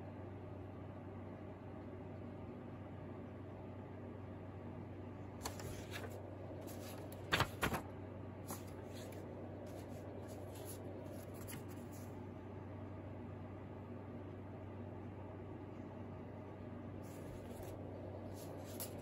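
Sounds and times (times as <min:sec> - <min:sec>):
steady low hum: 0:00.0 - 0:19.0
paper rustling and scraping: 0:05.4 - 0:07.9, 0:08.5 - 0:12.2, 0:17.0 - 0:19.0.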